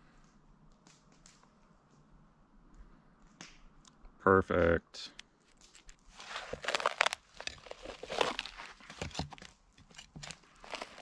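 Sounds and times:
wood cracking and tearing: 0:05.5 - 0:11.0.

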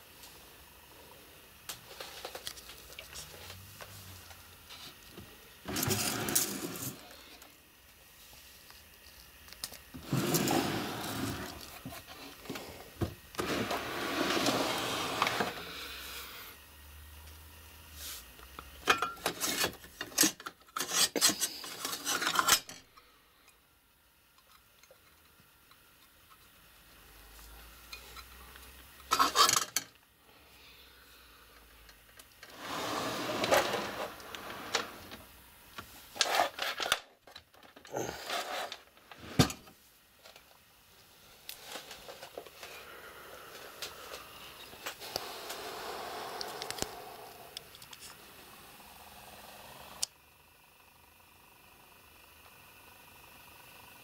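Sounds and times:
hands scraping plastic and metal: 0:19.0 - 0:22.7.

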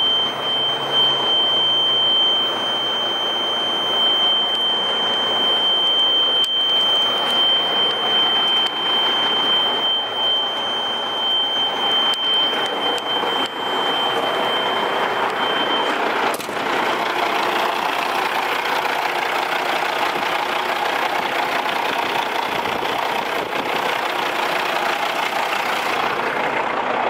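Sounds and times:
high-pitched warning buzzer: 0:00.0 - 0:16.1
diesel engine humming: 0:00.0 - 0:27.0.

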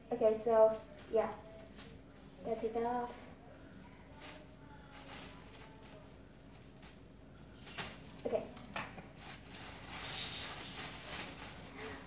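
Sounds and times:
plastic bag rustling and crinkling: 0:00.2 - 0:12.0.

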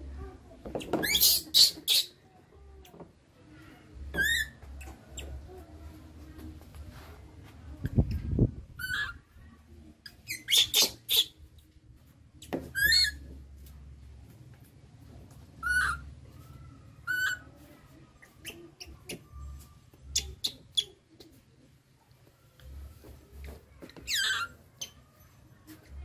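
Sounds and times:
baby monkey squeaky calls: 0:00.8 - 0:02.2, 0:04.1 - 0:05.4, 0:08.8 - 0:09.2, 0:10.0 - 0:11.4, 0:12.7 - 0:13.2, 0:15.6 - 0:16.1, 0:17.0 - 0:17.5, 0:18.2 - 0:21.0, 0:24.1 - 0:25.1.

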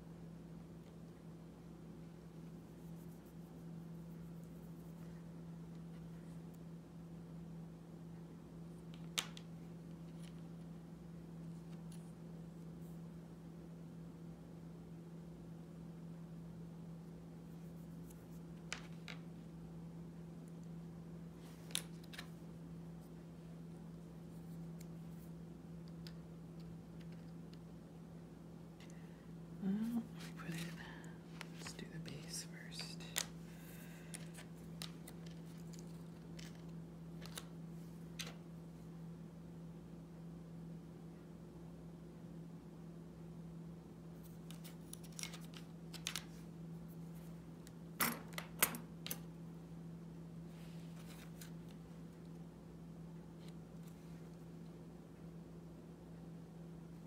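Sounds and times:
steady low hum: 0:00.0 - 0:57.0
small parts clicking on mat: 0:44.4 - 0:46.4.

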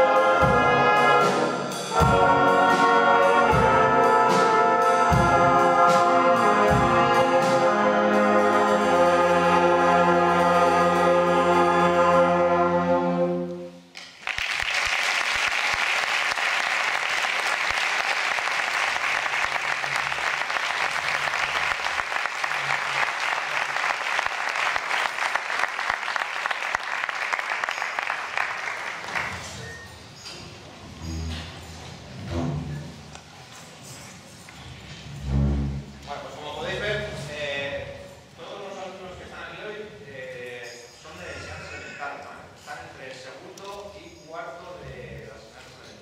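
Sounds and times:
wind band brass chord: 0:00.0 - 0:13.8, 0:35.2 - 0:36.1
audience applause: 0:14.0 - 0:29.6.

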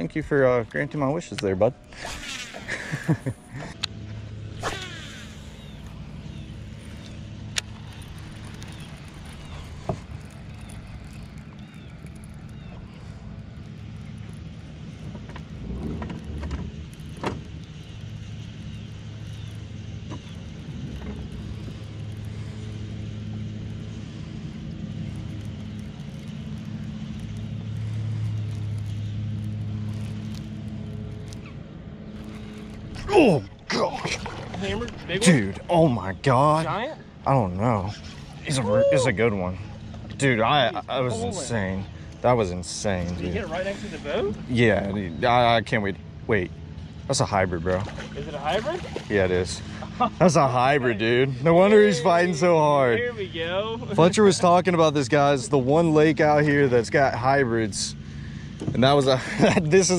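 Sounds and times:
steady low hum: 0:00.0 - 0:59.9
fishing rod swish: 0:01.9 - 0:02.7, 0:04.5 - 0:05.7.

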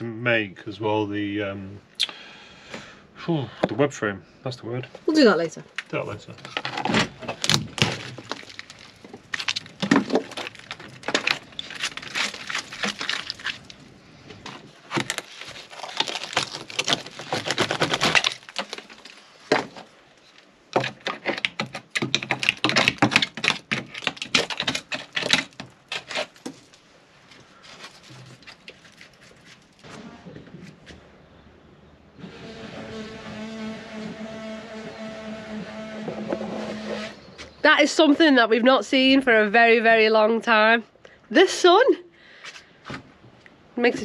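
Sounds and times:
wood cracking and splintering: 0:05.8 - 0:30.6
chisel scraping wood: 0:20.8 - 0:26.6, 0:32.2 - 0:37.3.

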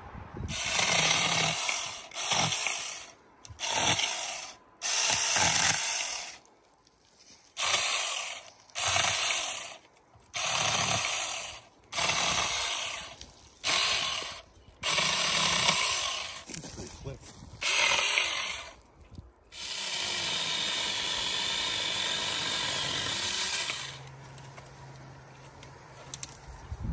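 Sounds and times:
electric chainsaw cutting branches: 0:00.5 - 0:06.4, 0:07.5 - 0:16.7, 0:17.6 - 0:18.8, 0:19.5 - 0:24.2.

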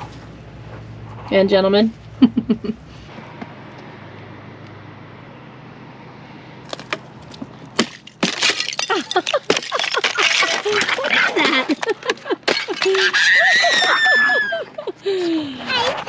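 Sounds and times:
thin ice cracking: 0:07.8 - 0:11.6.

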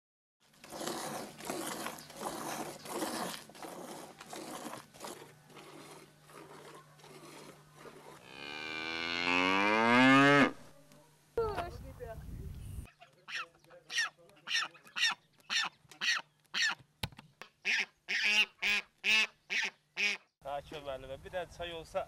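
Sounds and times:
cow mooing: 0:05.6 - 0:10.6.

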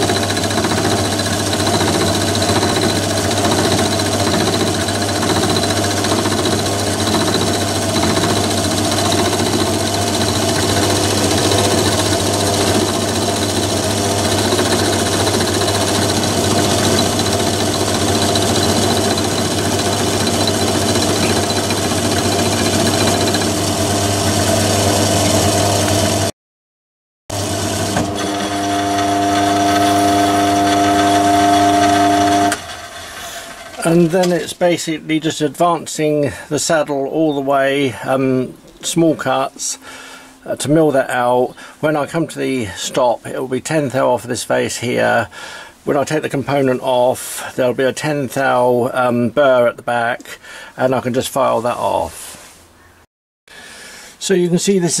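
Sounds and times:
lathe motor and gear hum: 0:00.0 - 0:26.3, 0:27.3 - 0:34.4
metal cutting noise: 0:00.0 - 0:26.3, 0:27.3 - 0:34.8.

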